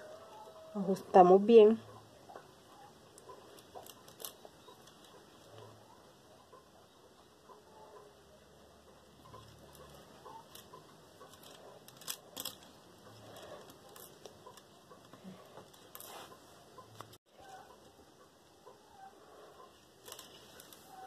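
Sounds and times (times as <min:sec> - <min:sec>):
fingers rustling on beadwork: 0:02.3 - 0:05.9, 0:08.9 - 0:17.7, 0:19.0 - 0:21.0.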